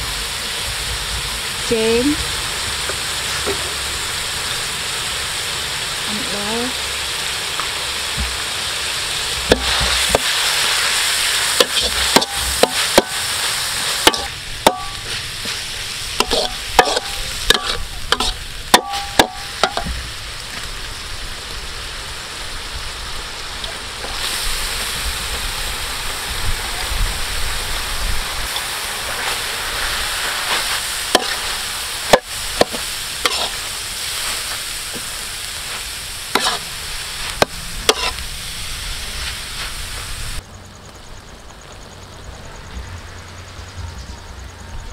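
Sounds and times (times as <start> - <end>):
meat sizzling in a wok: 0.0 - 40.4
metal spatula clanking on pan: 14.0 - 15.1, 16.2 - 20.0.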